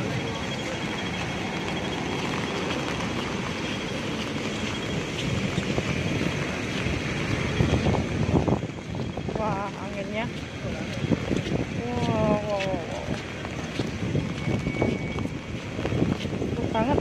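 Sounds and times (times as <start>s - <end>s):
falling rain: 0.0s - 11.8s
street traffic: 0.0s - 17.0s
wind buffeting microphone: 0.0s - 17.0s.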